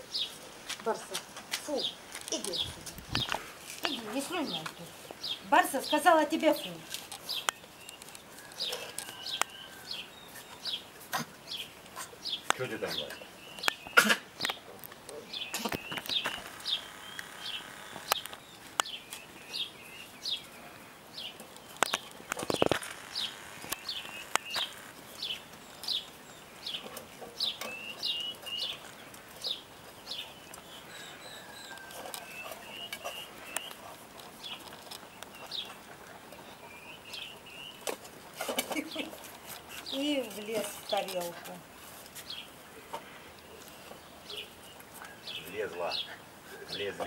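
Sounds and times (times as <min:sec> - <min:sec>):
small bird chirping: 0:01.6 - 0:38.0, 0:42.2 - 0:47.0
puppies eating from metal bowl: 0:23.8 - 0:41.3.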